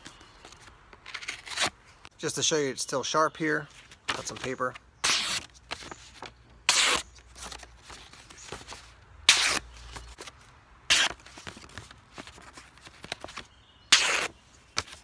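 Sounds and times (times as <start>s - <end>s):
knife slicing through paper: 4.1s - 5.8s, 6.7s - 7.6s, 9.3s - 9.7s, 10.9s - 11.2s, 13.9s - 15.0s.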